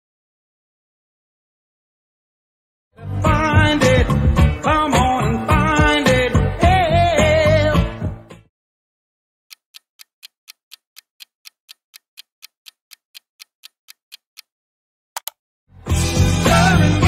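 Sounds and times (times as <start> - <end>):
clock ticking: 9.5 - 14.5
sharp clicks: 9.5 - 14.5, 15.2 - 15.4.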